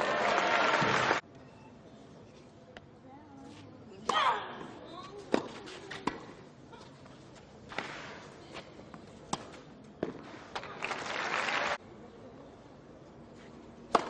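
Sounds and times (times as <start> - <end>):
crowd cheering and applauding: 0.0 - 1.2, 10.8 - 11.8.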